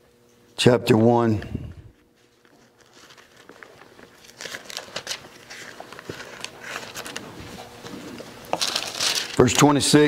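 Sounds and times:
book pages turning: 0:02.4 - 0:09.4.

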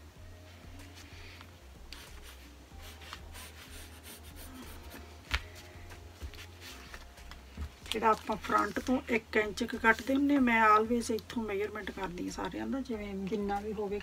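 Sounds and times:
pencil scratching on fabric: 0:01.9 - 0:05.1
paper rustling: 0:06.2 - 0:09.1.

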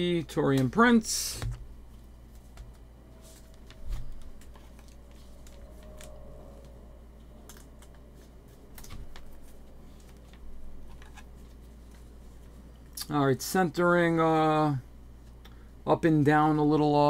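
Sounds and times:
faint low hum: 0:00.0 - 0:17.0
plastic card sleeve rustling: 0:01.4 - 0:06.6, 0:07.4 - 0:12.6.

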